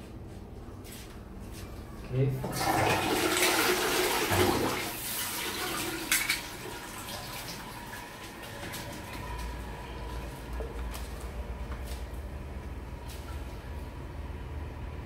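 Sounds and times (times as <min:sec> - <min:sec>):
toilet flushing: 0:02.4 - 0:10.2.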